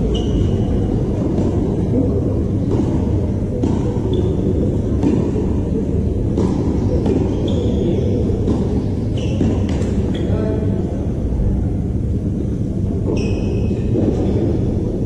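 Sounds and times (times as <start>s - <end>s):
tennis balls being struck: 2.6s - 7.4s, 8.3s - 10.0s.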